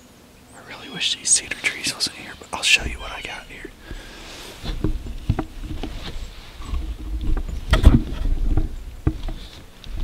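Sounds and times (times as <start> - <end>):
camera handling knocks and rubbing: 3.9 - 10.0.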